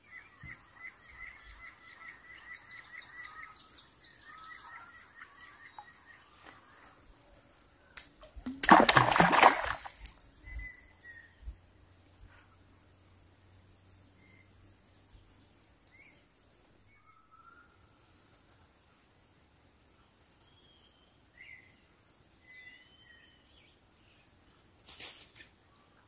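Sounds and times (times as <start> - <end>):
loud splash: 8.5 - 10.1.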